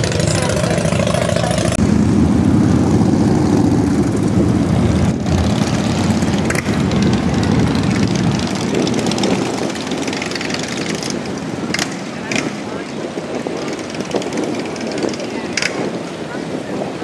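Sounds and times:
motorcycle engines rumbling: 0.0s - 17.0s.

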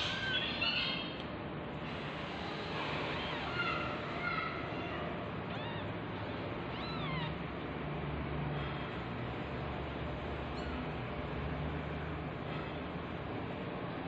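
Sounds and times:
kitten mewing: 4.8s - 7.4s.

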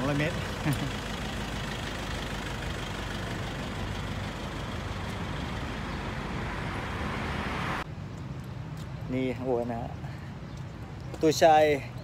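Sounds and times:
steady traffic noise: 0.0s - 12.0s
car driving past: 0.4s - 7.8s.

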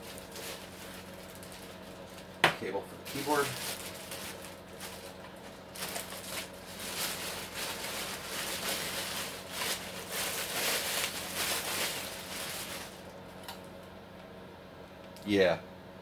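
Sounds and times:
plastic wrapping crinkling: 0.0s - 2.4s, 3.0s - 13.2s.

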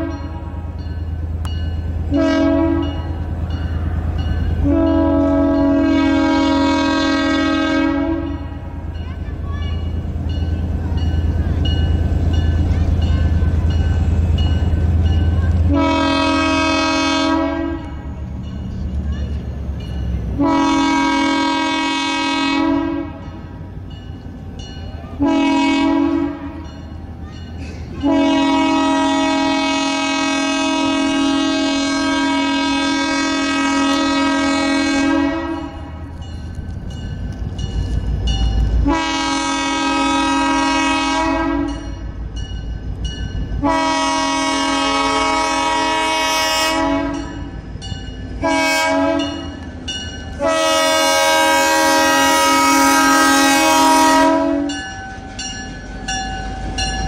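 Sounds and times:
locomotive air horn: 0.0s - 0.8s, 2.1s - 3.1s, 4.6s - 8.7s, 15.6s - 18.1s, 20.4s - 23.4s, 25.2s - 26.6s, 28.0s - 36.1s, 38.8s - 41.8s, 43.6s - 47.4s, 48.4s - 49.5s, 50.4s - 54.8s
diesel engine and train rumble: 0.0s - 57.0s.

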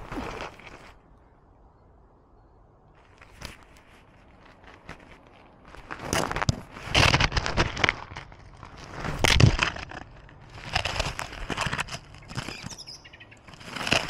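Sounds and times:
gravel crunching and scraping: 0.0s - 1.2s, 2.9s - 14.0s.

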